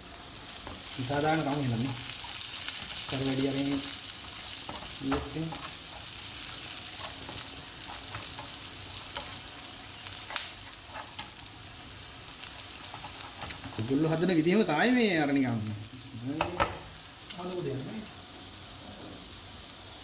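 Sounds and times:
onions sizzling in hot oil: 0:00.0 - 0:20.0
spatula scraping and tapping pan: 0:04.6 - 0:09.5, 0:10.1 - 0:11.4, 0:12.6 - 0:13.9.

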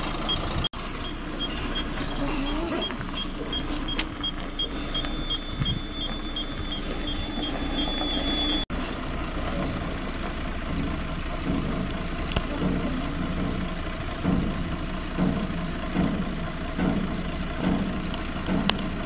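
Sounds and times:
high warning beep: 0:00.0 - 0:08.7
diesel truck engine running: 0:00.0 - 0:19.0.

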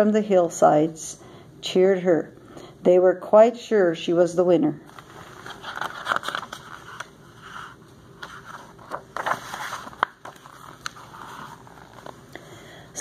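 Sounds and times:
paper rustling and scraping: 0:04.9 - 0:12.2
book pages turning: 0:04.9 - 0:12.3.

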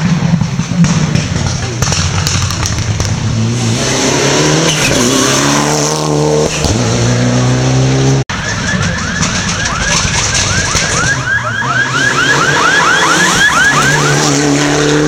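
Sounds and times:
rally car engine revving: 0:00.0 - 0:15.0
siren wailing in rising sweeps: 0:08.3 - 0:15.0.

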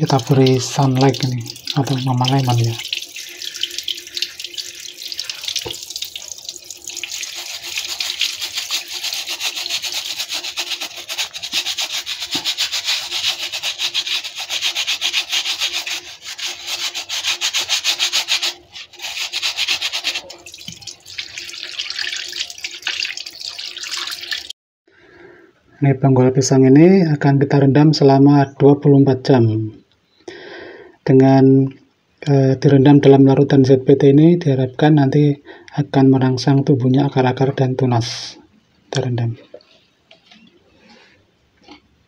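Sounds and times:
hands scrubbing: 0:00.0 - 0:24.4
running water splashing: 0:00.0 - 0:24.5.

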